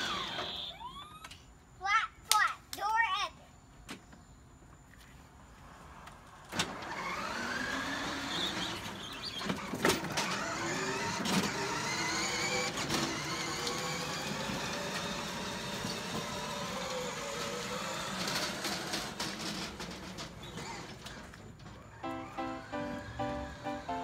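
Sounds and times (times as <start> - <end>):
toy truck electric motor whining: 0.0 - 1.3, 6.6 - 23.6.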